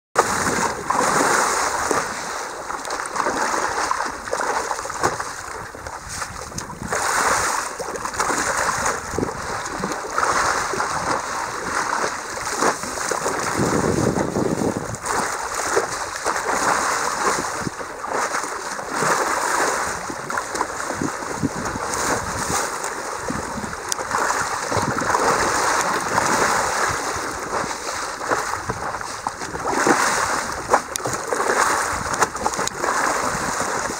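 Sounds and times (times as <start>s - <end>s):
water splashing against hull: 0.2s - 33.9s.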